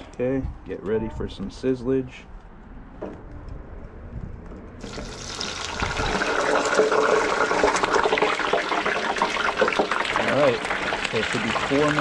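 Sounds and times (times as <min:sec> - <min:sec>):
food sizzling in deep-fryer oil: 0:04.8 - 0:12.0.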